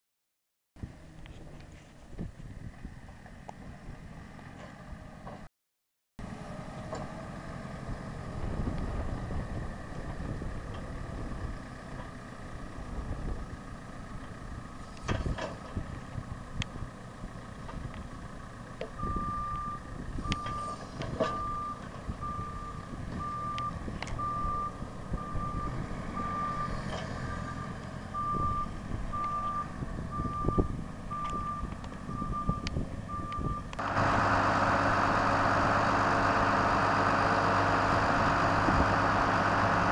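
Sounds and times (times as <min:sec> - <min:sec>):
diesel engine working: 0:06.2 - 0:39.9
reversing alarm beeps: 0:19.0 - 0:33.7.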